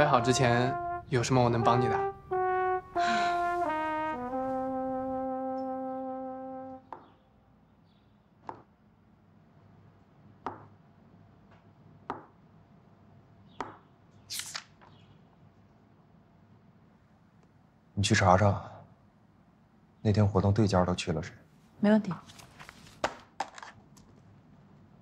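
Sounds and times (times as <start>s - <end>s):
comic brass music sting: 0.0s - 6.9s.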